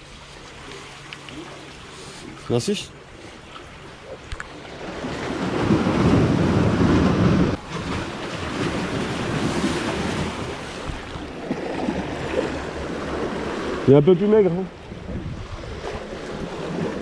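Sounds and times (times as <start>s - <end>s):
sea waves washing against rocks: 3.8s - 17.0s
wind buffeting microphone: 4.0s - 17.0s.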